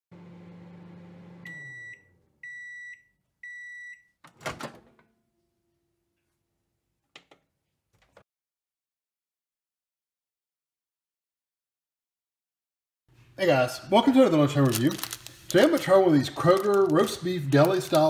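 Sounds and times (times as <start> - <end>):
microwave oven humming: 0.1 - 3.8.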